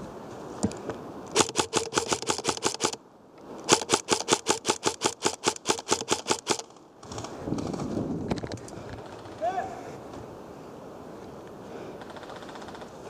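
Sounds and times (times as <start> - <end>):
airsoft gun rapid firing: 1.3 - 3.0, 3.7 - 6.7.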